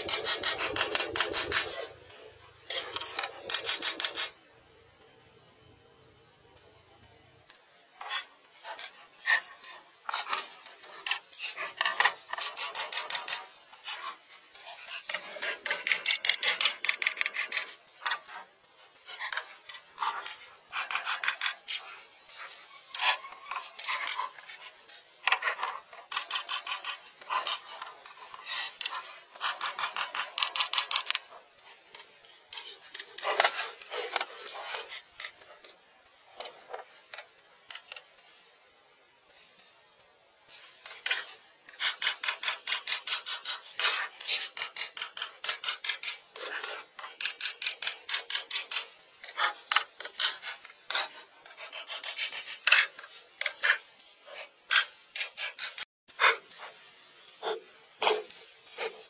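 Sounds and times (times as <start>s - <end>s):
dry scratching strokes: 0.0s - 4.4s, 40.5s - 59.0s.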